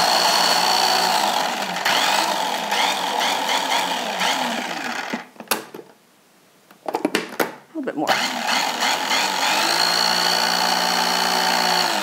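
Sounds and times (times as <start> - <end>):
food processor running: 0.0 - 5.2, 8.1 - 12.0.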